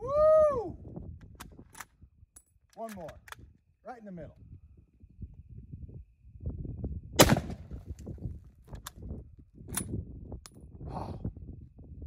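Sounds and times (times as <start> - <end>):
rifle shot: 7.2 - 7.8.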